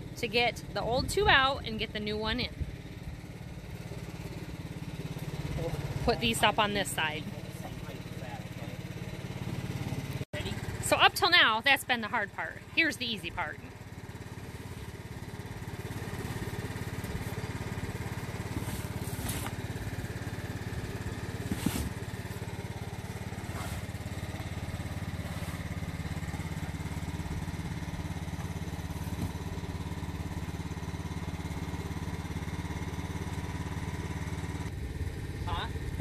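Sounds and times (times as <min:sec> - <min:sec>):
engine running: 0:00.0 - 0:36.0
rubber scuffs and knocks: 0:21.4 - 0:22.0.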